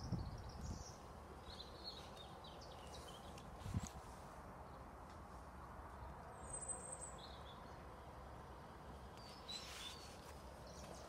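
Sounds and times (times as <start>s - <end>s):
bird calls and chirps: 0.0s - 4.0s, 6.0s - 8.0s, 9.1s - 11.0s.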